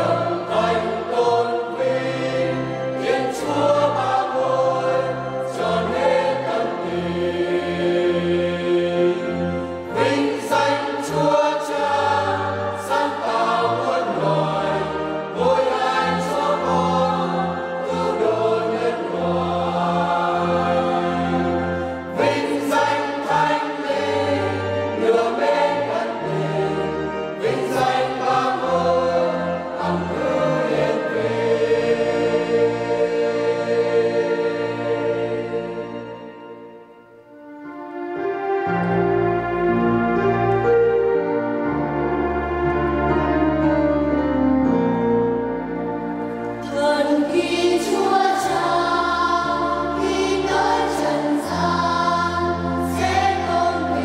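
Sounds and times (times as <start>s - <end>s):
mixed choir singing a hymn: 0.0s - 36.9s, 46.1s - 54.0s
held low accompaniment notes: 24.2s - 54.0s.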